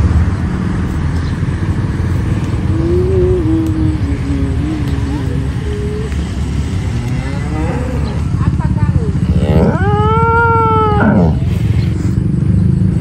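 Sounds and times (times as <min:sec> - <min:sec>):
low rumble: 0:00.0 - 0:12.2
cow mooing: 0:04.2 - 0:08.4, 0:09.0 - 0:11.5.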